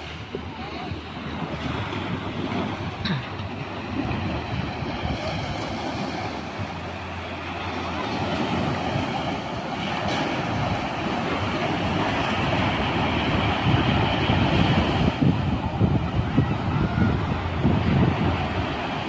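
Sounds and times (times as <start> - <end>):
ocean surf breaking: 0.0 - 19.0
wind buffeting microphone: 0.0 - 19.0.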